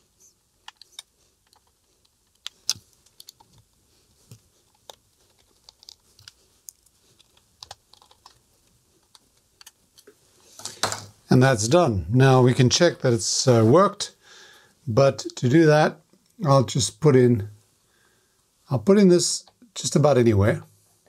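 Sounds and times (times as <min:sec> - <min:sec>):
small metal parts clicking: 0:04.7 - 0:08.4.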